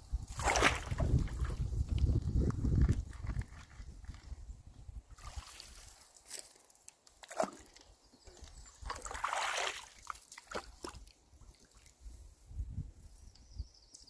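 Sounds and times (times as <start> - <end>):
muddy water sloshing and splashing: 0.2 - 4.3, 5.1 - 12.1.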